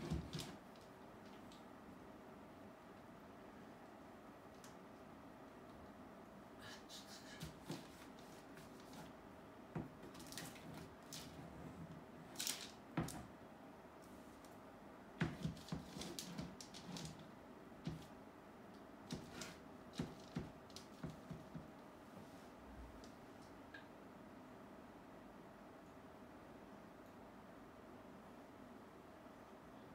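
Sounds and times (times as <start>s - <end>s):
faint steady hum: 0.0s - 29.9s
art materials clicking and rustling: 9.8s - 11.5s.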